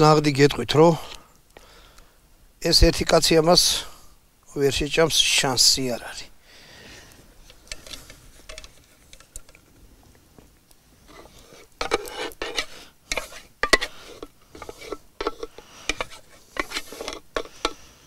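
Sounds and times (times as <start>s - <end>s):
metal pot scraping clay dish: 11.1s - 17.8s.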